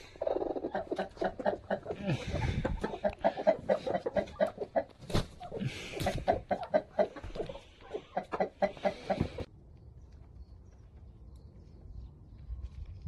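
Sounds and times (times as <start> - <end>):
hens clucking: 0.0 - 9.5.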